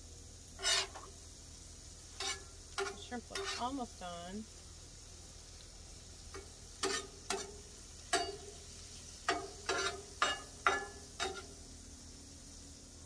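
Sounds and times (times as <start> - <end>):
food sizzling: 0.0 - 13.0
metal spatula scraping griddle: 0.6 - 1.1, 2.1 - 3.8, 6.3 - 11.6.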